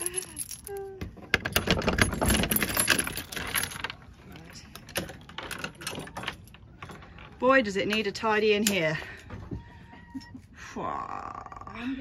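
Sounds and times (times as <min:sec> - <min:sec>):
chain and padlock rattling: 0:00.0 - 0:07.7.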